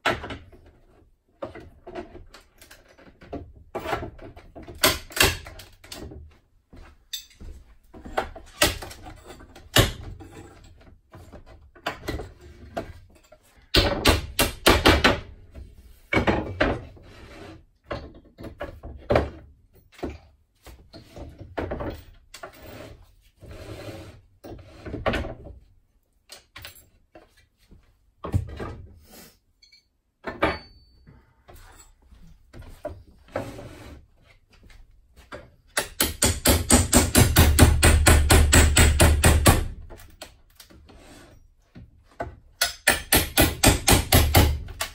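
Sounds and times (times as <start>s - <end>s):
wood creaking and knocking: 17.8s - 22.4s
loud rapid knocks: 35.9s - 39.7s.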